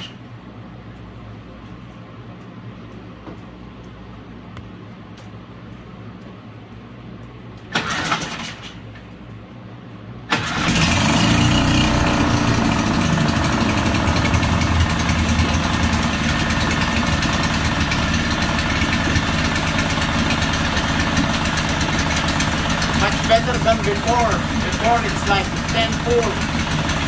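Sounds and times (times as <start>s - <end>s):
outboard motor cranking: 7.7s - 8.8s, 10.3s - 27.0s
outboard motor revving and idling: 10.3s - 27.0s.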